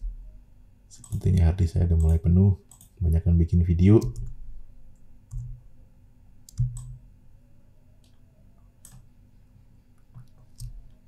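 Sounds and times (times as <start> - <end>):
faint steady hum: 0.0 - 11.0
computer mouse clicks: 1.0 - 1.2, 2.0 - 2.9, 6.5 - 7.0, 8.8 - 9.1, 10.1 - 10.8.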